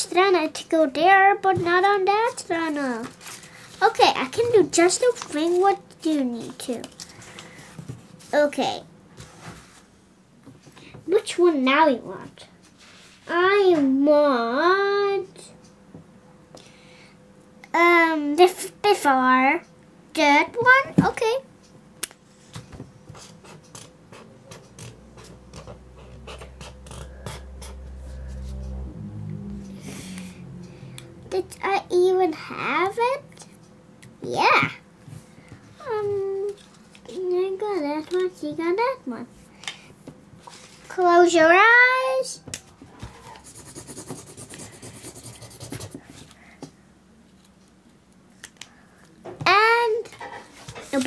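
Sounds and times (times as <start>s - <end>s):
low steady hum: 0.0s - 51.0s
marker scratching on paper: 26.0s - 27.8s, 43.1s - 46.2s.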